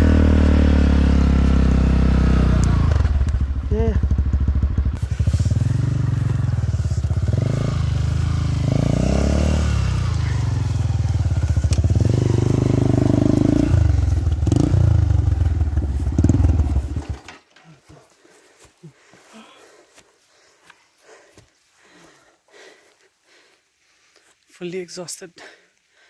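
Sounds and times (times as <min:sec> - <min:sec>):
dirt bike engine revving: 0:00.0 - 0:17.4.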